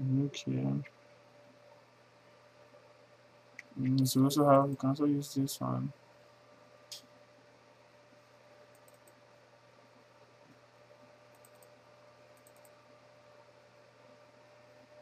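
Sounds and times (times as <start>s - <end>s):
steady low hum: 0.0s - 15.0s
computer mouse clicks: 8.7s - 9.2s, 11.3s - 12.8s.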